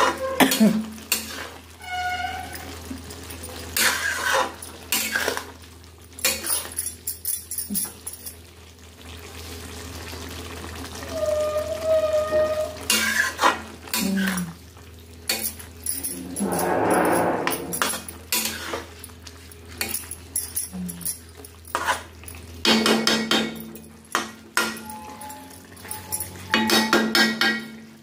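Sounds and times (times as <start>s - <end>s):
metal spatula scraping a pan: 1.1s - 2.7s, 3.8s - 5.5s, 11.1s - 14.3s, 16.1s - 18.9s.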